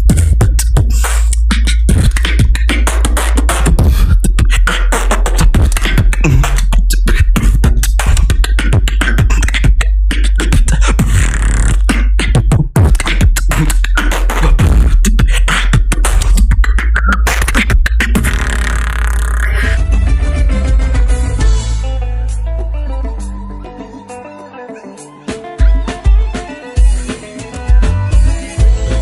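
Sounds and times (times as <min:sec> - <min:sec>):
person beatboxing: 0:00.0 - 0:20.0.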